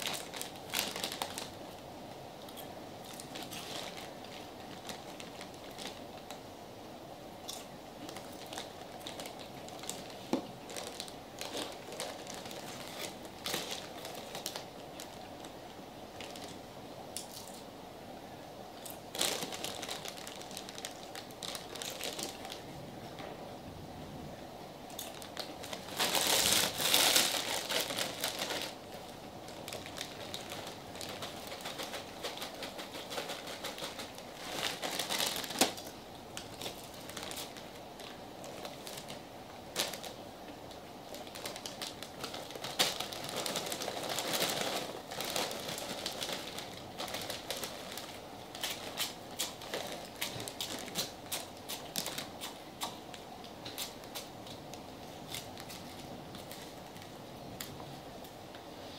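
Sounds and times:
snack bag crinkling: 0.0 - 1.6, 7.5 - 15.6, 18.8 - 22.6, 24.9 - 40.2, 41.1 - 54.6.

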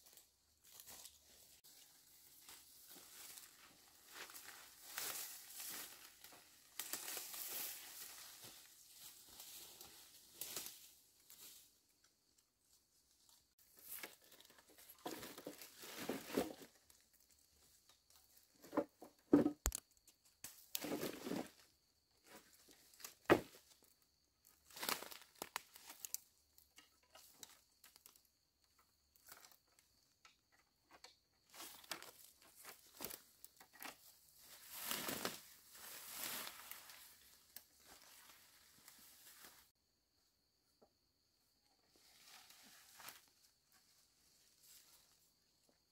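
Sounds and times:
dry leaves rustling and crunching: 0.6 - 10.8, 24.7 - 26.2, 34.4 - 39.6
dry wood snapping: 19.6 - 19.8.

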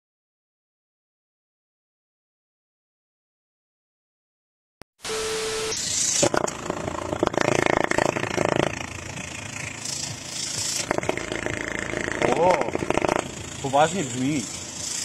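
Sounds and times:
tv static hiss with beep: 5.0 - 6.3
engine exhaust pulsing through tube: 6.0 - 15.0.

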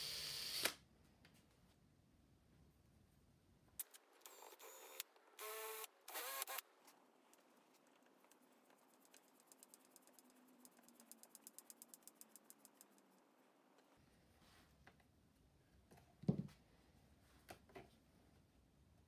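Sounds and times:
cordless drill driving screw into wood: 0.0 - 0.8, 4.3 - 6.6.

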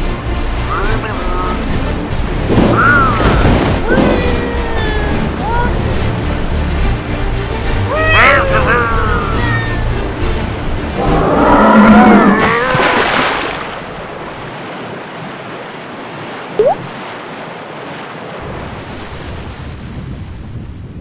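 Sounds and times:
ocean surf: 0.0 - 20.7
short rising blip: 16.6 - 16.9.

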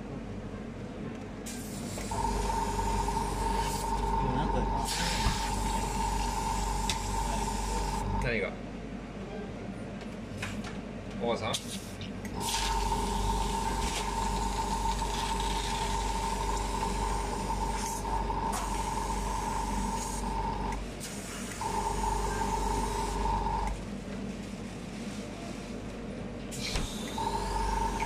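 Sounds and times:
spray gun whining and hissing: 4.8 - 8.0.

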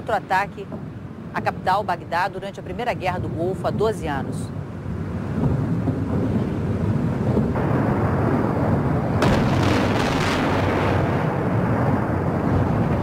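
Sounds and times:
low explosion rumble: 5.4 - 13.0
explosion blasts: 7.0 - 13.0.

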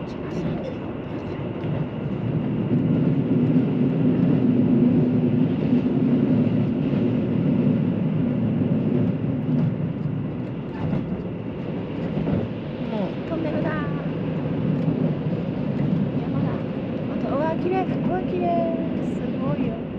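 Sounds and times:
train wheels rolling on rails: 0.0 - 19.8.

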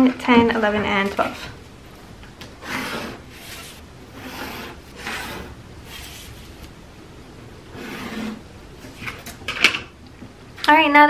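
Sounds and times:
pencil scratching on paper: 2.6 - 6.6, 7.7 - 8.4
ruler sliding on paper: 2.6 - 6.7, 7.7 - 8.4.

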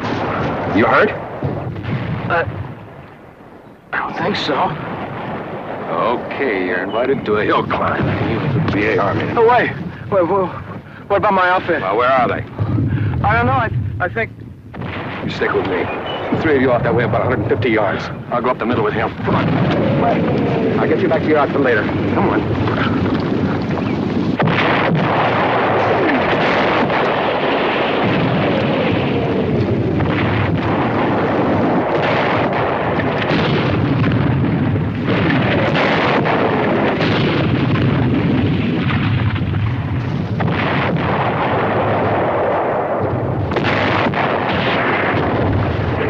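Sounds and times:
explosions: 0.0 - 46.0
shells whistling down: 15.6 - 16.6.

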